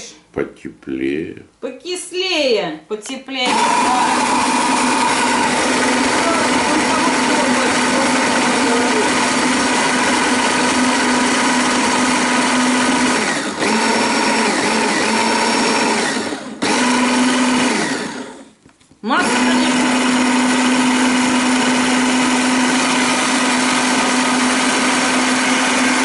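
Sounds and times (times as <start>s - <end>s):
hand blender motor whining: 3.4s - 18.5s, 19.1s - 26.0s.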